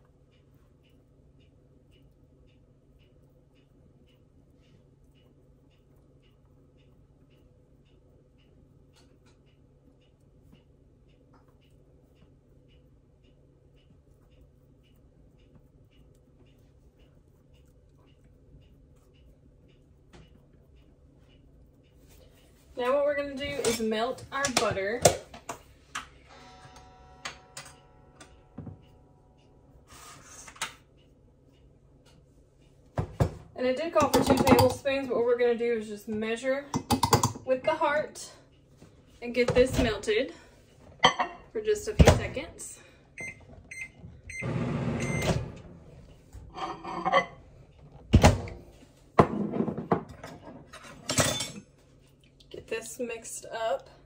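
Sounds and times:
microwave running: 0:25.9 - 0:29.7, 0:43.0 - 0:51.8
kitchen things knocking and clicking: 0:33.0 - 0:35.0, 0:36.7 - 0:37.5, 0:39.4 - 0:40.1, 0:41.0 - 0:42.4, 0:46.5 - 0:51.7
microwave beeps: 0:43.2 - 0:45.6.

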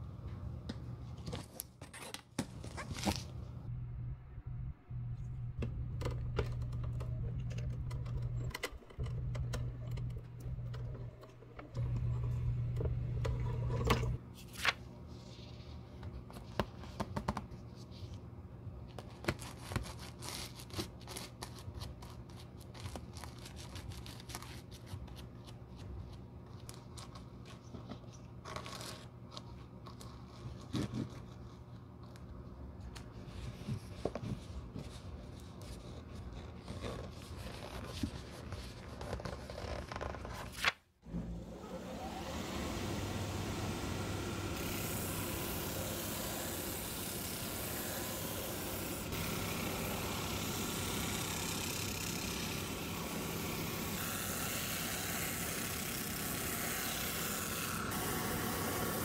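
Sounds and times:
cutting machine motor hum: 0:41.1 - 0:59.0.

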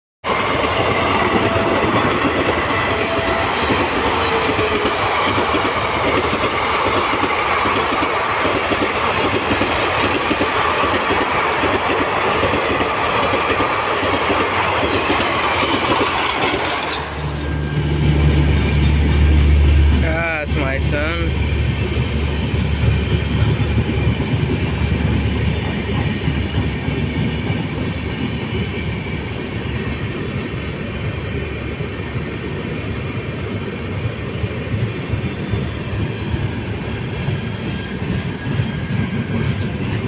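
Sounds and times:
train wheels clickety-clack: 0:00.3 - 0:30.5, 0:34.0 - 0:40.0.

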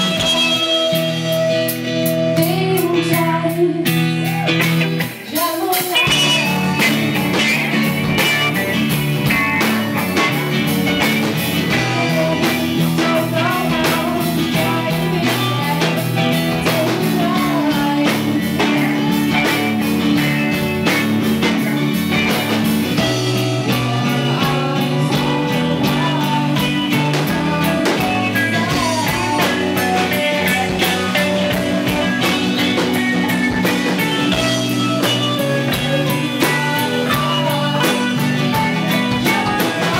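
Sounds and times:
woman singing: 0:00.0 - 0:04.6, 0:05.2 - 0:07.6, 0:11.4 - 0:39.9
live rock band playing: 0:00.0 - 0:39.9.

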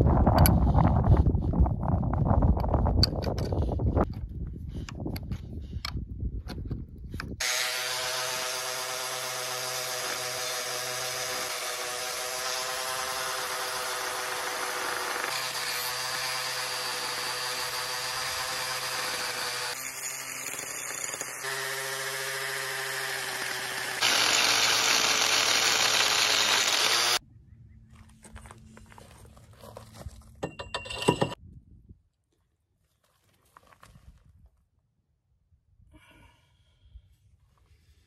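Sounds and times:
angle grinder grinding fibreglass: 0:07.4 - 0:27.2.

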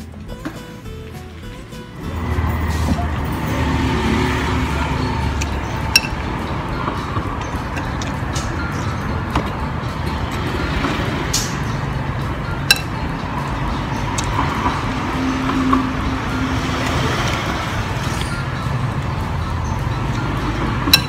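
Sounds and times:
spoon clinking against a bowl: 0:05.1 - 0:09.6, 0:12.6 - 0:13.2.

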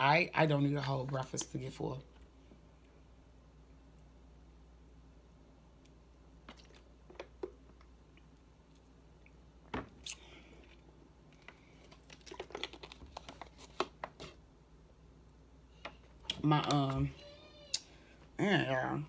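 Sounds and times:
person chewing fruit: 0:06.4 - 0:14.0.

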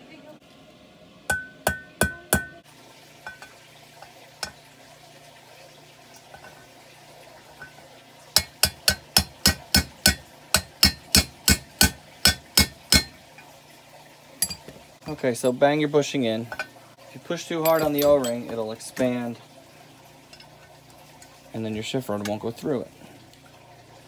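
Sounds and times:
hammer tapping on metal: 0:01.3 - 0:02.6, 0:08.4 - 0:13.1.

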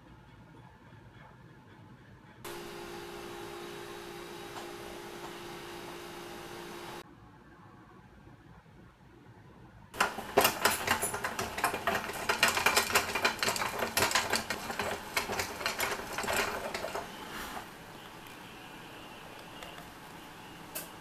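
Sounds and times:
toy forklift metal clicks and rattles: 0:10.0 - 0:17.7.

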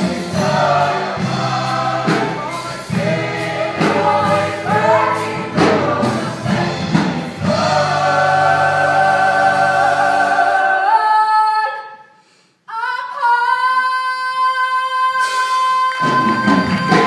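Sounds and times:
chorus singing a chord: 0:00.0 - 0:11.3
audience applause: 0:16.0 - 0:17.0.

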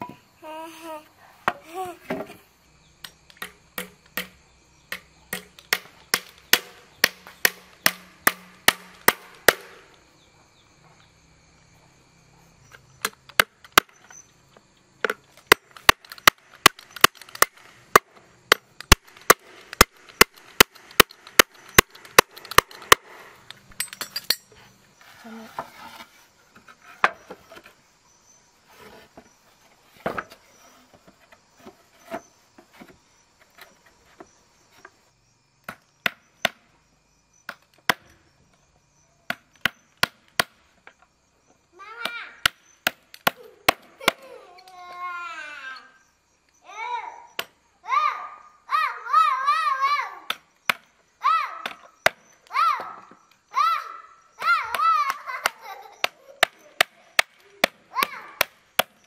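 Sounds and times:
hammer striking wood: 0:03.4 - 0:09.8.

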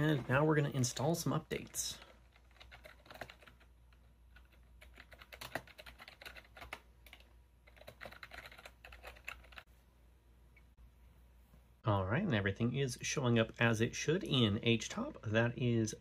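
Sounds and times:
computer keyboard typing: 0:01.9 - 0:09.6.

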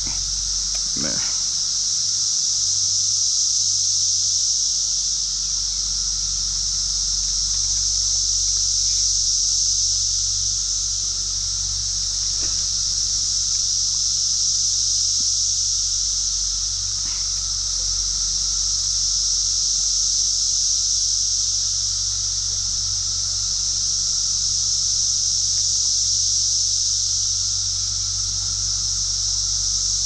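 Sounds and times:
faint ticks: 0:00.0 - 0:01.5, 0:07.2 - 0:08.2
low steady rumble: 0:00.0 - 0:02.3, 0:04.8 - 0:25.5
insect chorus drone: 0:00.0 - 0:30.0.

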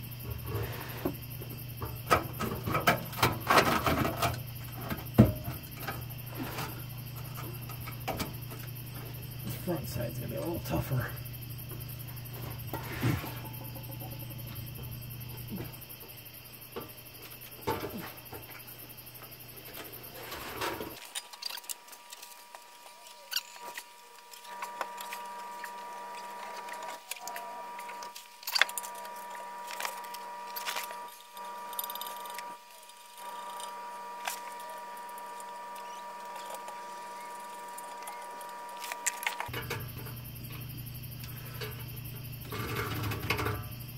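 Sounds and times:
hand tools clicking and scraping: 0:16.8 - 0:40.6, 0:41.2 - 0:43.9
faint steady high tone: 0:24.4 - 0:39.4.

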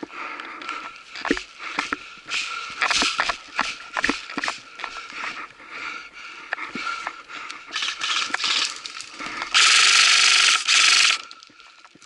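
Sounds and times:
airsoft rifle full-auto burst: 0:09.5 - 0:11.2.

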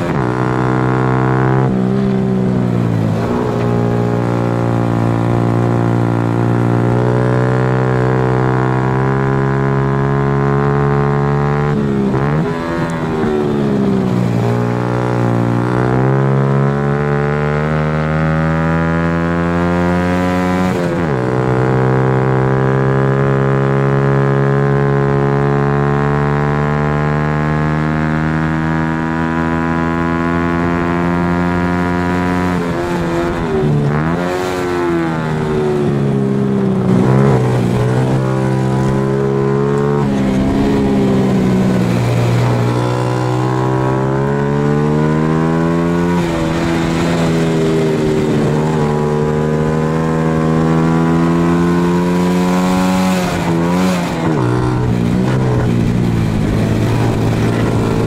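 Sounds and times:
motorbike engine revving: 0:00.0 - 0:58.0.

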